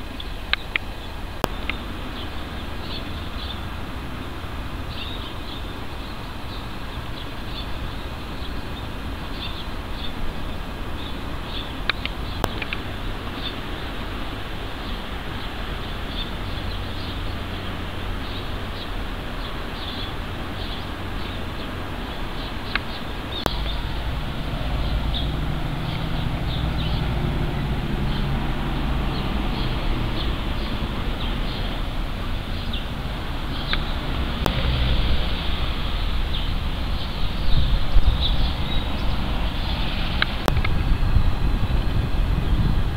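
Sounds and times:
sharp click: 0:11.9 - 0:12.8
low rumble: 0:23.2 - 0:42.9.

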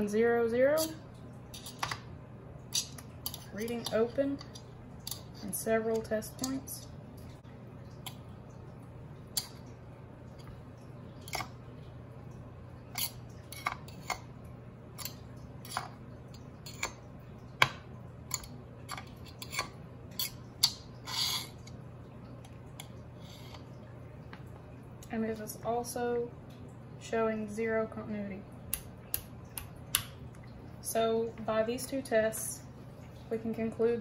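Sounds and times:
faint steady hum: 0:00.0 - 0:34.0.

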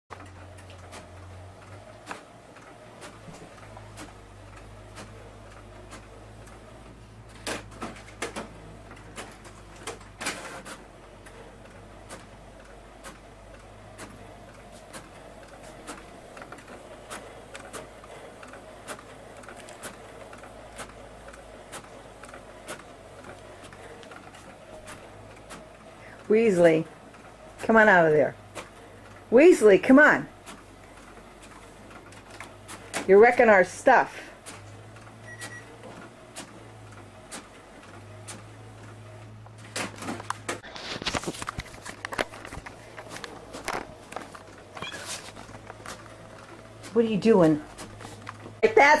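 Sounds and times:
printer motor hum: 0:00.1 - 0:49.0
printhead carriage moving: 0:00.1 - 0:49.0
printer clicks: 0:07.2 - 0:25.8.

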